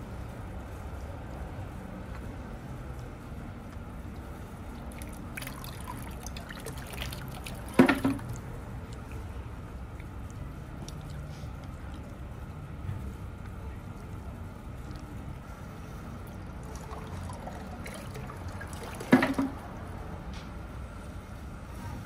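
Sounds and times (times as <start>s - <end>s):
water trickling into stone basin: 4.1s - 12.8s, 16.2s - 19.4s.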